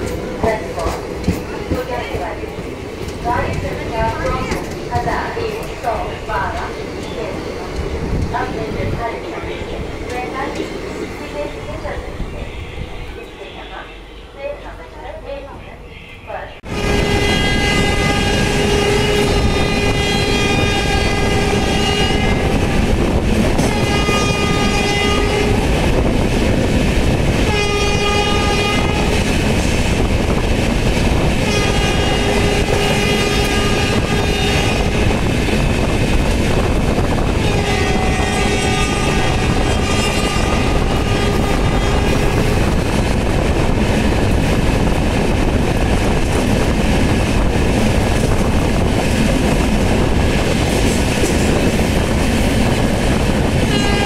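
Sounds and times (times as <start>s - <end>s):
train wheels clickety-clack: 0.0s - 8.8s, 17.1s - 54.0s
locomotive horn blasts: 15.9s - 22.8s, 23.6s - 25.6s, 27.5s - 29.2s, 31.4s - 35.2s, 37.4s - 42.4s, 53.7s - 54.0s.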